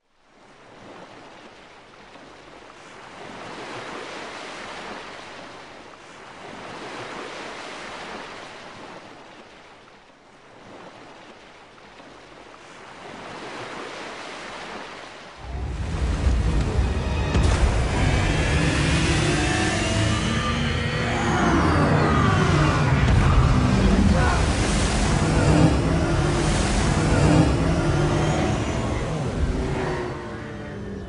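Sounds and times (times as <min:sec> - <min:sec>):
ocean waves washing: 0:00.2 - 0:31.0
loud deep sound: 0:15.4 - 0:30.9.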